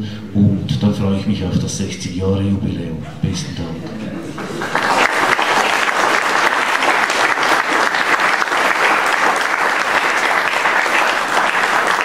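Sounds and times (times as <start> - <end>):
audience applauding: 4.0 - 12.0.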